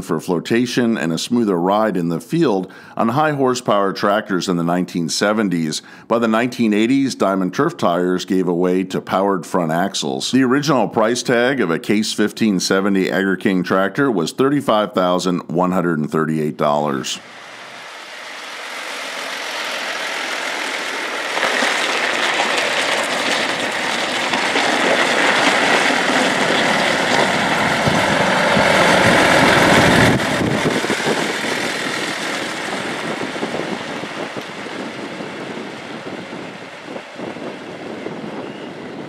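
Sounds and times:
tractor diesel engine passing: 0:17.1 - 0:39.0.

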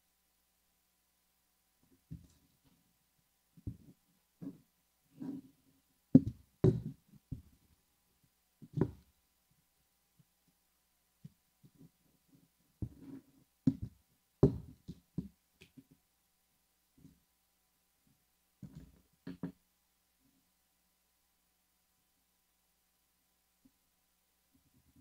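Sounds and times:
knocks and thumps on cutting mat: 0:03.6 - 0:04.6, 0:06.2 - 0:07.5, 0:08.7 - 0:09.1, 0:12.8 - 0:15.3.

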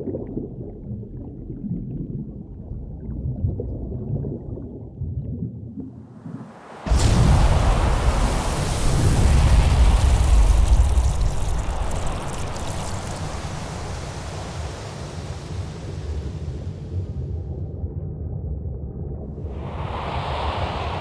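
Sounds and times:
water pouring into a glass jar: 0:09.2 - 0:14.7.

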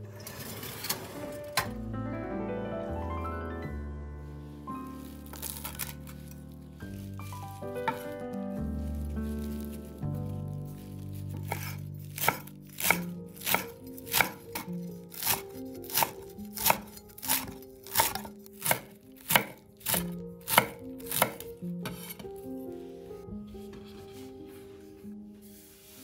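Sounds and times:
knife chopping on wooden board: 0:05.3 - 0:06.3, 0:07.8 - 0:08.2, 0:11.1 - 0:22.2.

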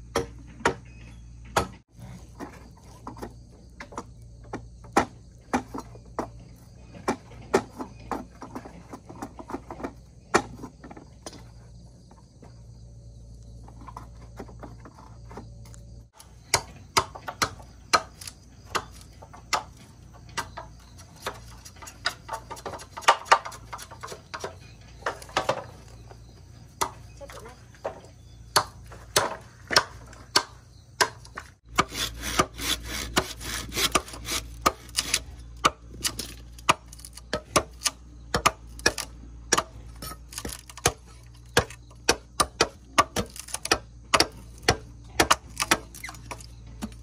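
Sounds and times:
machete chopping bamboo: 0:16.1 - 0:25.7, 0:27.8 - 0:47.0.

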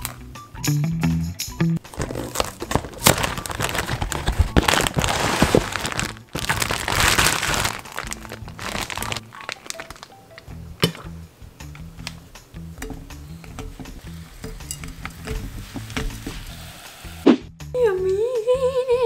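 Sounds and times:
packaging rustling and crinkling: 0:01.8 - 0:10.4.

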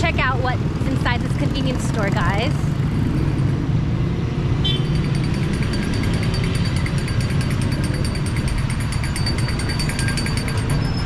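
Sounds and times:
vehicle engine rumbling: 0:00.0 - 0:11.0
faint high fast ticking: 0:04.7 - 0:11.0.

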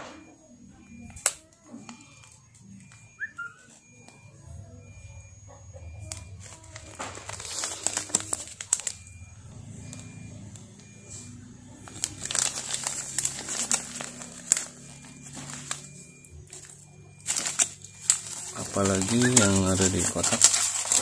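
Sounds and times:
plastic pouch crinkling: 0:06.0 - 0:10.1, 0:11.8 - 0:21.0.

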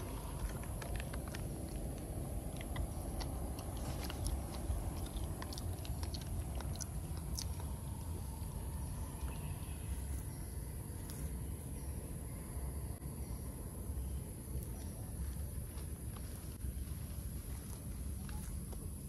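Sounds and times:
small irregular clicks: 0:00.0 - 0:10.3
steady low rumble: 0:00.0 - 0:19.0.

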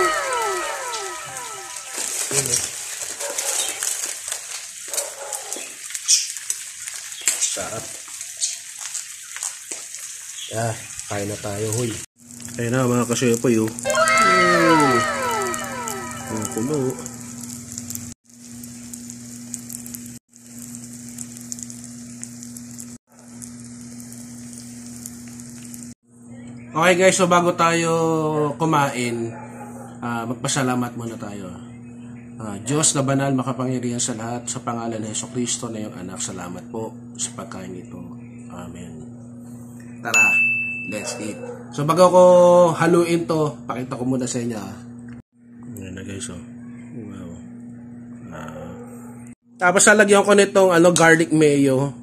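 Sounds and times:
distant dog yelping: 0:00.0 - 0:02.0, 0:13.9 - 0:17.2, 0:29.2 - 0:30.0, 0:41.0 - 0:41.8, 0:48.3 - 0:49.4
food sizzling on hot plate: 0:00.0 - 0:26.0.

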